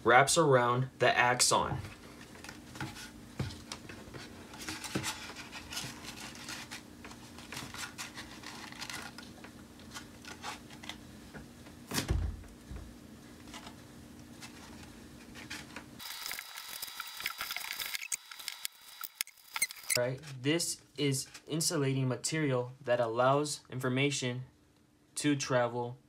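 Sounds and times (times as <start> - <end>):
corn husks rustling and crackling: 3.7 - 11.0.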